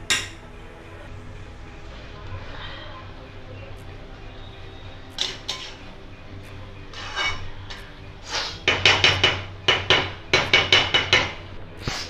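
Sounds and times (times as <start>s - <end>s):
metal spatula scraping a pan: 5.2s - 5.9s, 6.9s - 12.0s.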